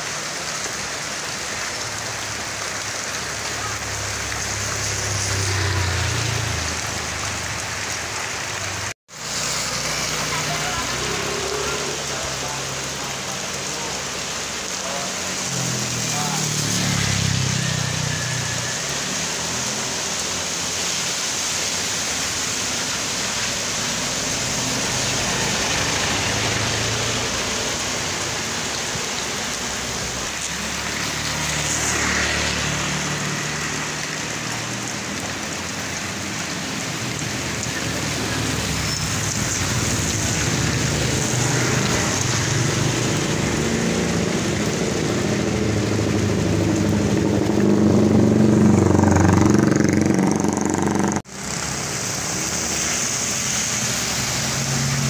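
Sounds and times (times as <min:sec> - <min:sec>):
rain on wet asphalt: 0:00.0 - 0:55.0
vehicles passing on wet road: 0:00.0 - 0:55.0
motorbike engine: 0:40.7 - 0:51.5.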